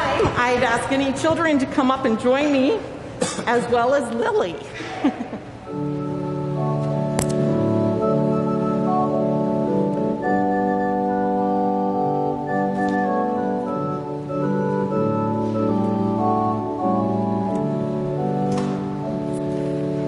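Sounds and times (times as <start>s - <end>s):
organ playing sustained chords: 5.5s - 20.0s.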